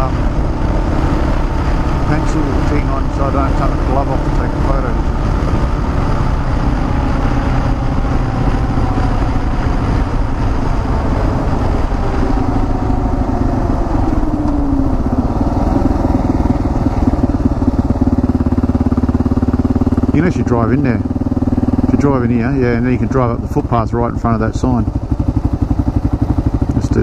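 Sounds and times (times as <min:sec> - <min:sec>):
wind rush: 0:00.0 - 0:20.1
motorcycle engine running: 0:00.0 - 0:27.0.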